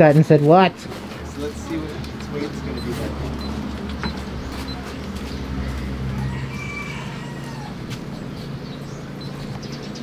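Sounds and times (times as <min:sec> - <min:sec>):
rooster crowing: 0:05.5 - 0:08.2.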